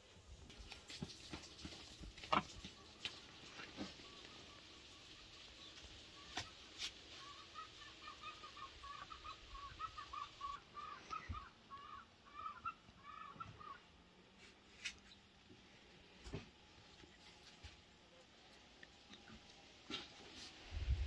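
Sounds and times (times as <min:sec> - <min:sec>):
chickens clucking: 0:07.2 - 0:13.8.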